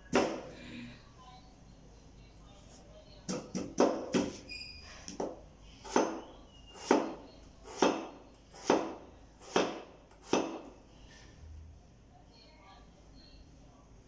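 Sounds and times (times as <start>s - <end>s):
cleaver chopping on cutting board: 6.8s - 10.7s.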